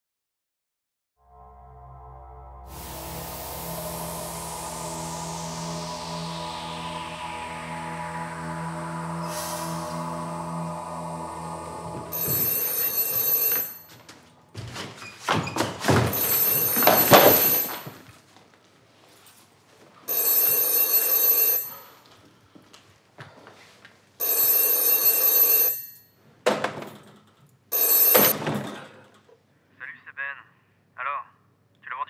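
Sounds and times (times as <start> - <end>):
telephone bell ringing: 12.1 - 14.0, 16.2 - 17.9, 20.1 - 22.0, 24.2 - 26.2, 27.7 - 28.4
door being shut: 14.6 - 17.9, 26.4 - 27.1, 28.1 - 29.2.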